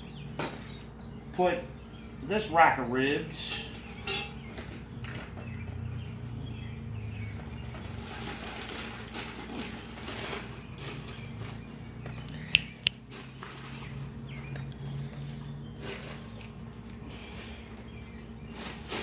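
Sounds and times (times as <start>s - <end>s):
sharp clicks: 12.2s - 13.0s.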